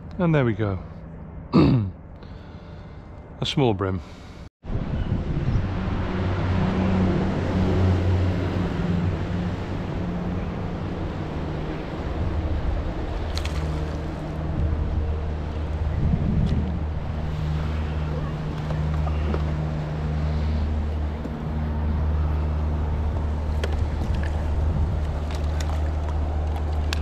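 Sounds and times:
wind and water rushing: 0:04.7 - 0:20.8
small boat motor humming: 0:06.4 - 0:27.0.

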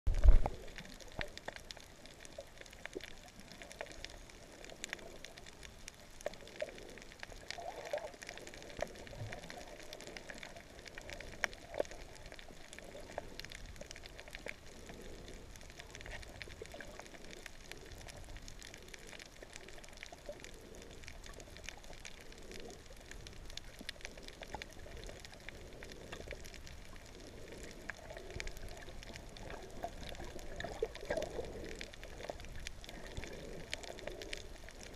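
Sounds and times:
crackle of small clicks: 0:00.1 - 0:34.9.

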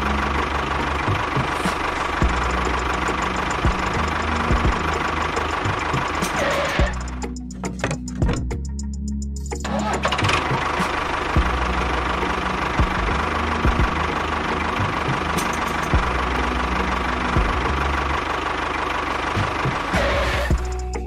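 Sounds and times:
tractor engine running: 0:00.0 - 0:21.0
knocking rattle: 0:02.2 - 0:08.6.

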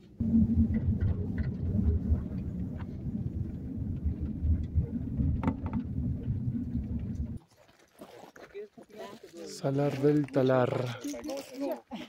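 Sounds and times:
road and engine rumble: 0:00.0 - 0:07.4.

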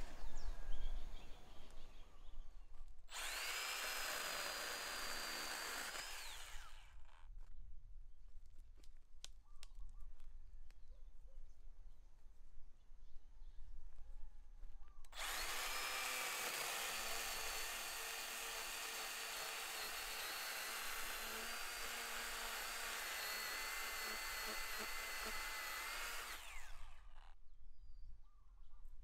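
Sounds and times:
mini chainsaw cutting log: 0:03.1 - 0:07.2, 0:15.1 - 0:27.4.

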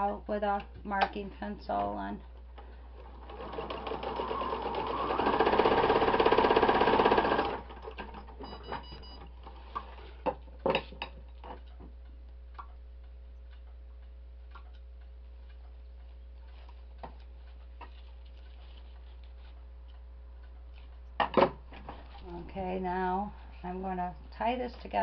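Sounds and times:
sewing machine stitching: 0:03.0 - 0:08.2.

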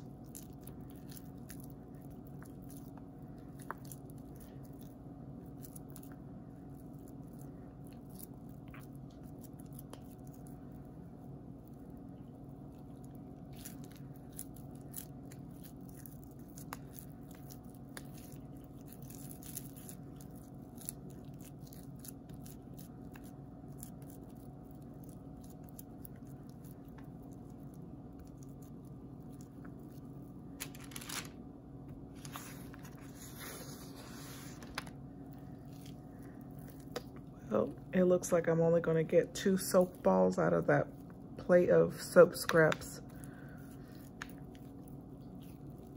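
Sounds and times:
steady low hum: 0:00.0 - 0:45.9
soap scraps crackling: 0:11.7 - 0:31.4, 0:32.1 - 0:38.4, 0:42.0 - 0:45.9.

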